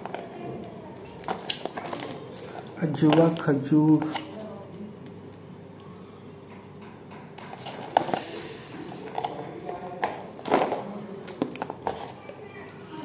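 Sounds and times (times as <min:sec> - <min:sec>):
plastic wrap crinkling: 0:00.0 - 0:05.4, 0:08.9 - 0:12.7.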